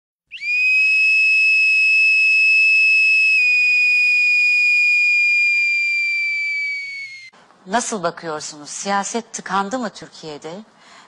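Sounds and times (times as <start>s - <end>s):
high-pitched whistle-like tone: 0.3s - 7.3s.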